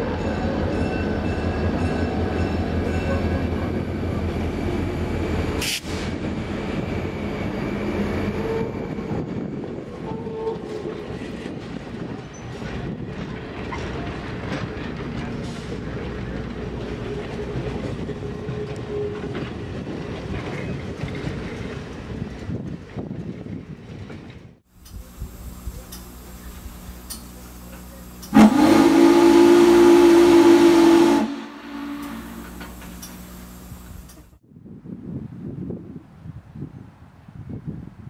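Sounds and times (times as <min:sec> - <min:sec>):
train wheels rolling: 0:04.0 - 0:34.3
steam whistle blast: 0:28.3 - 0:32.9.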